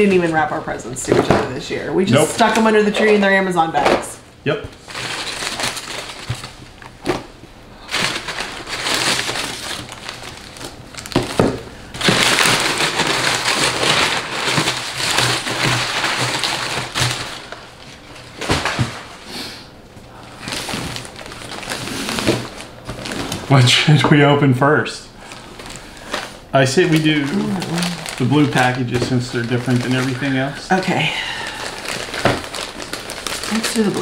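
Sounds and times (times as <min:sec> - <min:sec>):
tissue paper rustling: 0:04.8 - 0:06.6, 0:07.8 - 0:11.4, 0:12.0 - 0:18.9, 0:25.2 - 0:30.5, 0:31.4 - 0:34.0.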